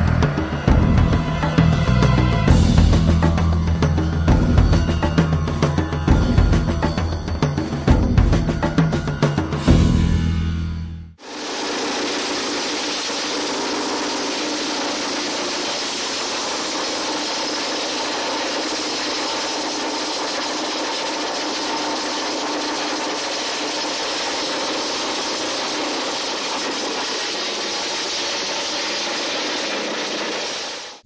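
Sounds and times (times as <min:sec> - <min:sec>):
small petrol engine running: 0:11.2 - 0:31.0.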